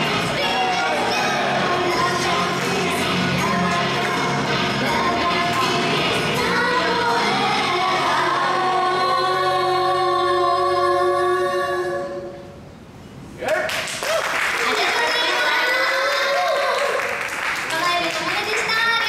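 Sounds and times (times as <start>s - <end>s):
women singing pop song: 0.0s - 12.3s.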